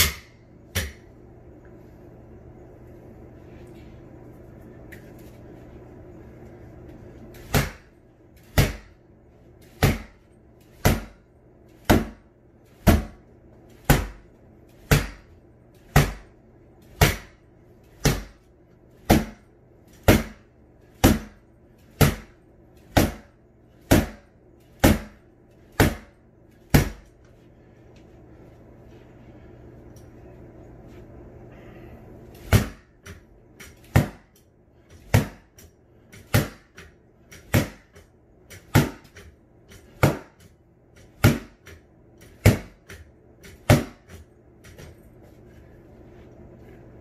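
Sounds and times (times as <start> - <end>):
practice sword whacking punching bag: 0.0 - 1.1, 7.4 - 9.0, 9.6 - 15.3, 15.9 - 17.4, 18.0 - 18.4, 19.0 - 27.1, 32.4 - 34.4, 35.0 - 44.2.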